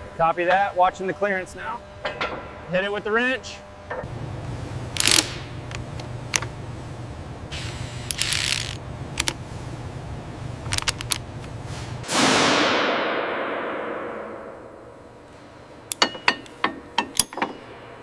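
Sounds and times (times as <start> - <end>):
low machinery hum: 0.0 - 18.0
wrench ratcheting clicks: 5.0 - 5.3, 8.1 - 9.3, 10.7 - 11.2.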